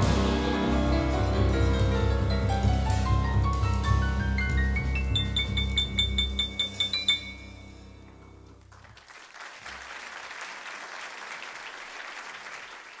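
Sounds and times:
high piano notes: 0.0s - 8.6s
audience applauding: 8.6s - 13.0s.

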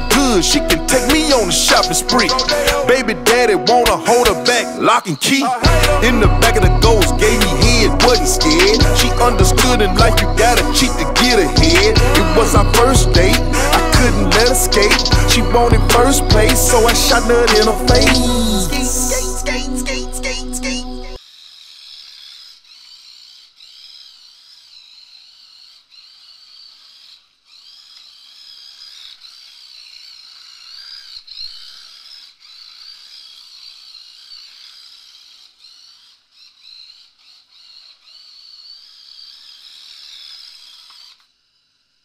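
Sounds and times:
toy car electric motor whining: 38.3s - 41.3s.

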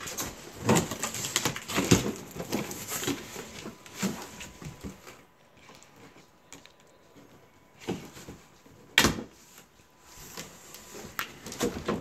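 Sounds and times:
cardboard scraping and crackling: 0.0s - 6.4s.

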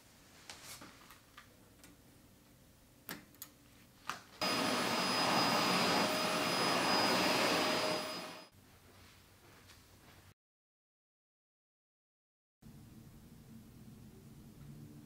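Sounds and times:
vacuum cleaner whining: 4.4s - 8.5s.

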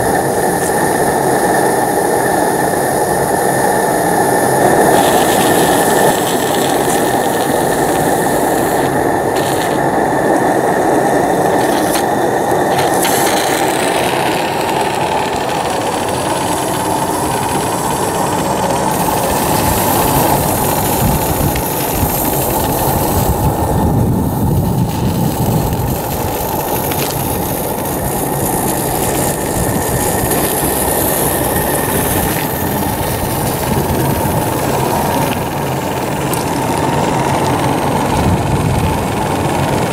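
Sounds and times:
steady high tone: 0.0s - 26.8s
small steam engine chattering: 0.0s - 39.9s.

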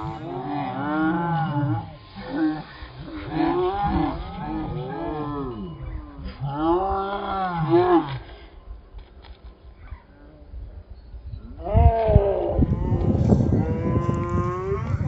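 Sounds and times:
long moo-like calls: 0.0s - 8.4s, 11.5s - 15.0s.

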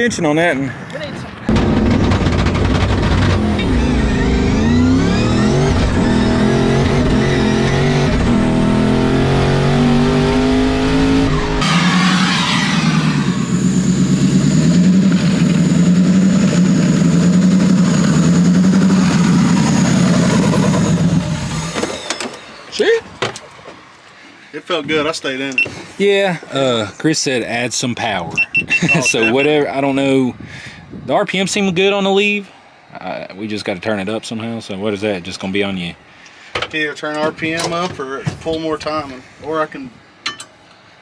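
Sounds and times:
car engine accelerating through gears: 1.8s - 21.8s.

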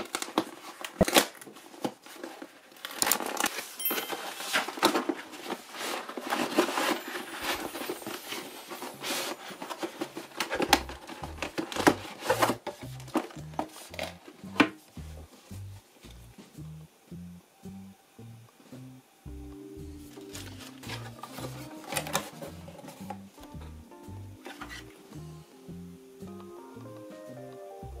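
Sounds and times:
cardboard tearing and crinkling: 0.0s - 14.4s, 20.2s - 23.2s
background music with bass line: 10.6s - 28.0s.

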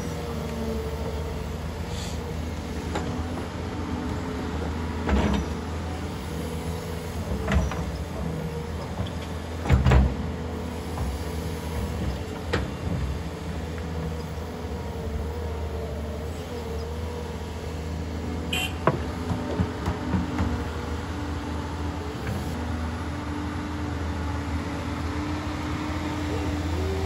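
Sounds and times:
excavator diesel engine running: 0.0s - 27.0s.

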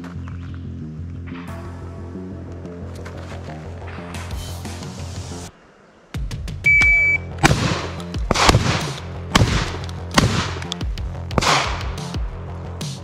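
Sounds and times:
shot timer beep: 6.7s - 7.3s
shotgun shots: 7.4s - 10.8s, 11.4s - 12.1s.

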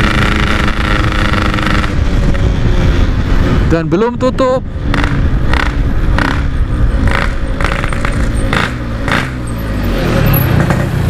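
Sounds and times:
motorcycle engine running: 0.0s - 3.6s, 4.8s - 9.7s.

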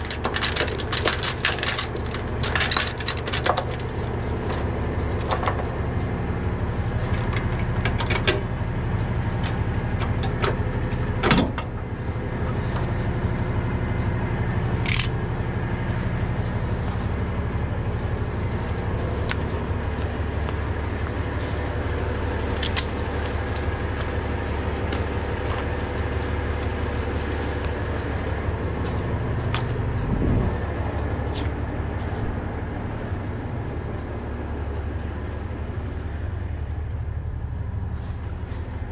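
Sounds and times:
metal chains clanking: 0.0s - 4.0s
diesel engine idling: 0.0s - 38.9s.

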